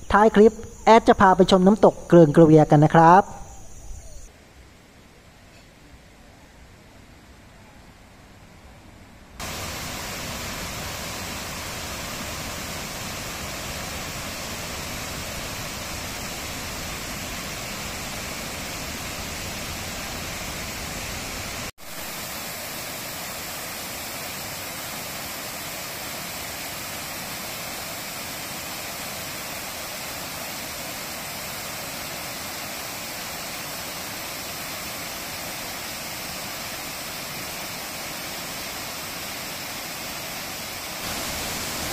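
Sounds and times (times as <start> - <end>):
waterfall rushing: 9.4 - 41.9.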